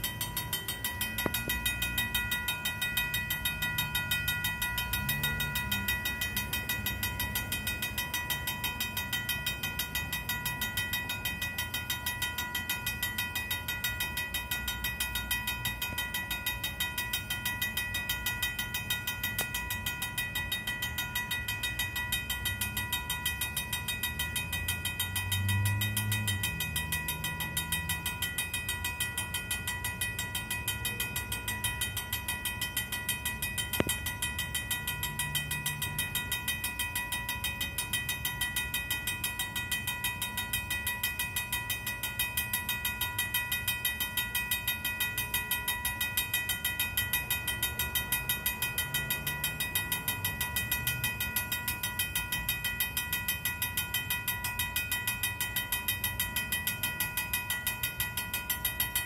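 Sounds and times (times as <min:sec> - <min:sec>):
railroad crossing bell ringing: 0:00.0 - 0:59.0.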